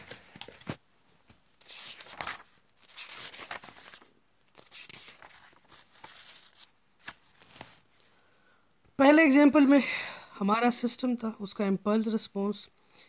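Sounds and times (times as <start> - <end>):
paper rustling and crinkling: 0.0 - 7.9.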